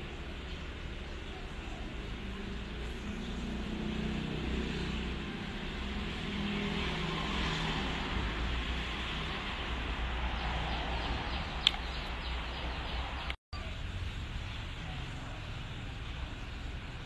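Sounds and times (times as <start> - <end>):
distant road traffic: 0.0 - 17.0.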